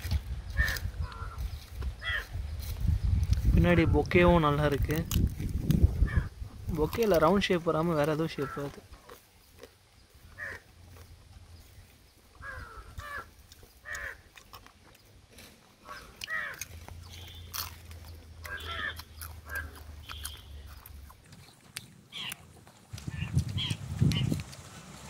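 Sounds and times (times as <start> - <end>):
crunching and chewing crab shell: 0.0 - 3.6, 4.2 - 25.0
animal calls: 0.5 - 2.4, 6.0 - 6.4, 8.2 - 9.6, 10.2 - 11.1, 12.3 - 14.7, 15.8 - 24.4.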